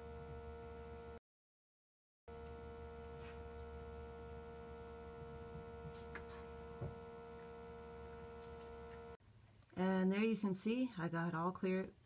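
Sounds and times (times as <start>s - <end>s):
electrical hum: 0.0s - 1.2s, 2.3s - 9.2s.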